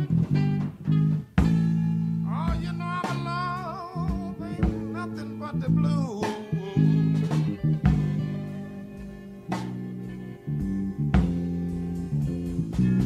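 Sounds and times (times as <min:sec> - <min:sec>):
bass chord: 0:00.0 - 0:13.0
blues guitar bent notes: 0:00.0 - 0:13.0
drum hits: 0:00.2 - 0:01.9, 0:02.5 - 0:05.1, 0:07.2 - 0:08.4.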